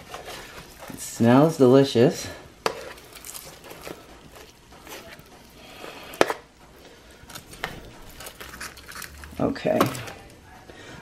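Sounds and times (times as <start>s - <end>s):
metal tongs scraping sheet pan: 2.6s - 6.5s.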